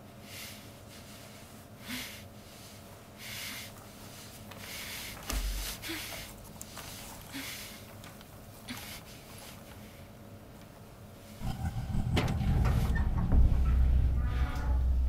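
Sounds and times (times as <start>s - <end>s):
woman breathing hard through nose: 0.2s - 8.0s, 8.7s - 10.2s
dull low thump: 11.4s - 15.0s.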